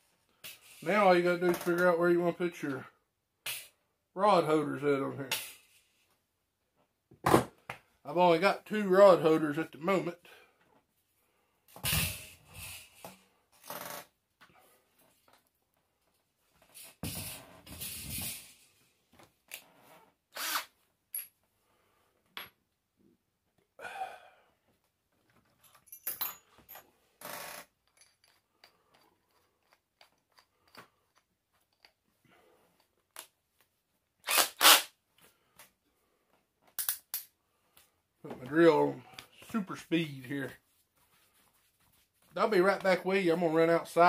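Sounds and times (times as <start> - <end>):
tools and metal strip handling: 27.8 - 32.1.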